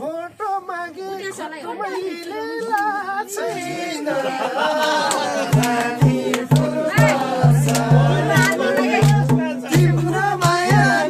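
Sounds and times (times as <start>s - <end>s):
hand drum strokes: 5.5s - 11.0s
man singing: 5.5s - 11.0s.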